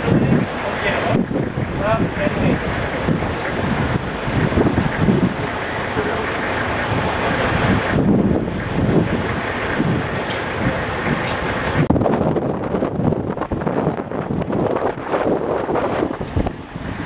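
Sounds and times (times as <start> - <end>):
indistinct voices: 0.0 - 9.8
vehicle engines: 0.0 - 17.0
wind buffeting the microphone: 0.0 - 17.0.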